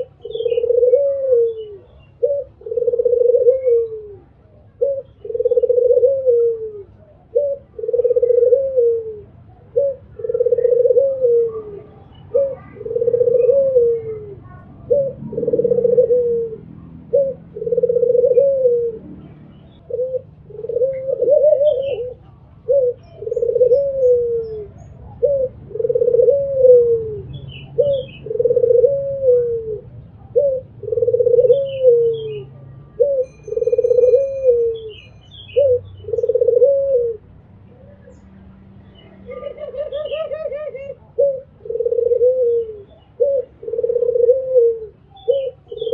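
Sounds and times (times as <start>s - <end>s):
dove cooing: 0.0s - 38.2s, 39.0s - 45.9s.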